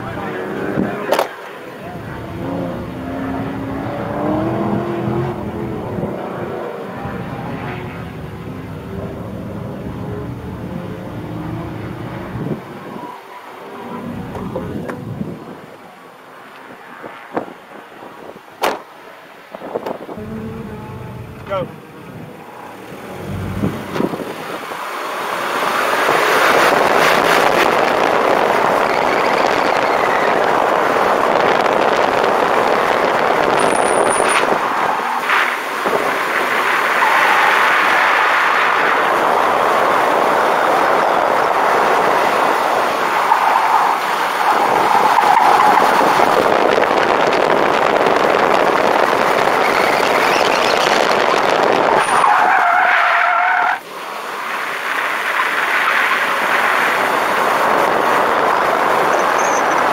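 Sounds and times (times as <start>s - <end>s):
car engine and road noise: 0.0s - 59.9s
tyre squeal: 49.6s - 51.1s, 52.0s - 53.8s, 59.1s - 59.9s.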